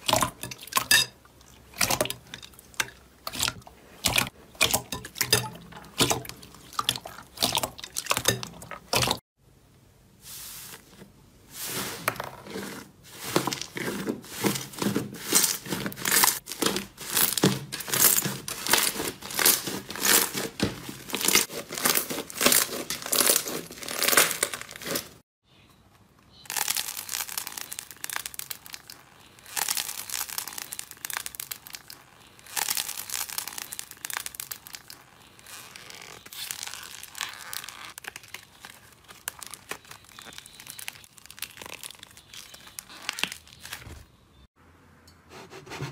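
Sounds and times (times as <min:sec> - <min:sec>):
slime squishing: 0:00.0 - 0:09.2, 0:11.6 - 0:25.2, 0:26.5 - 0:43.9
slime tearing crackle: 0:15.3 - 0:25.2, 0:26.5 - 0:43.9.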